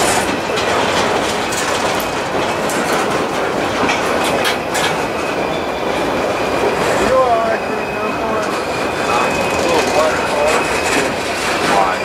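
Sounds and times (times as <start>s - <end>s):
freight train rumbling past: 0.0s - 12.0s
wheels clicking over rail joints: 0.0s - 12.0s
high wheel squeal: 4.0s - 12.0s.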